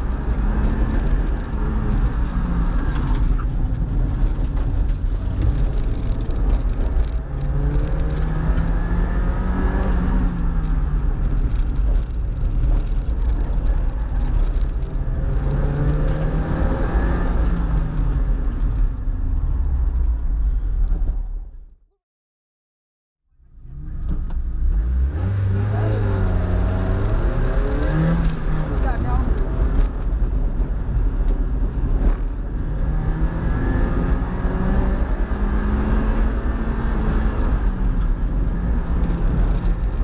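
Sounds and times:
car engine revving: 0:00.0 - 0:18.6, 0:23.5 - 0:40.0
road and wind noise: 0:00.0 - 0:21.9, 0:23.3 - 0:40.0.

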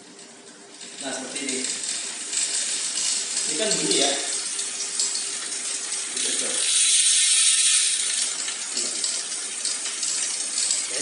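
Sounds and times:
bike chain scraping derailleur: 0:00.8 - 0:09.1.

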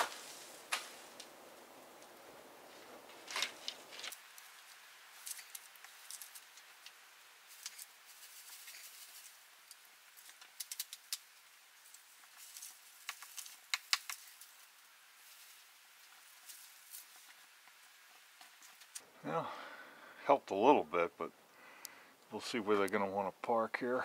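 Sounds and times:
snow falling off branches: 0:00.0 - 0:19.0.

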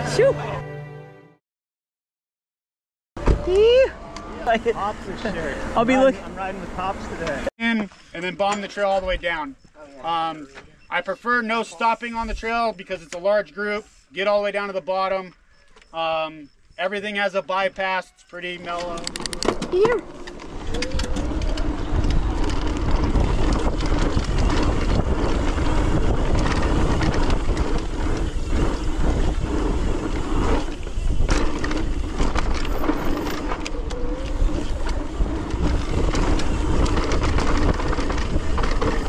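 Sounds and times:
bike rattling over bumps: 0:18.6 - 0:39.0
wind buffeting microphone: 0:19.0 - 0:39.0
tyre rumble: 0:19.4 - 0:39.0.

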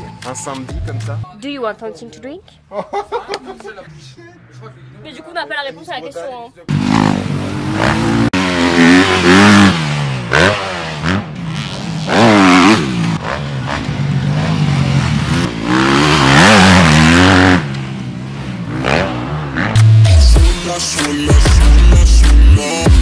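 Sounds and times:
dirt bike engines revving: 0:06.7 - 0:20.4.

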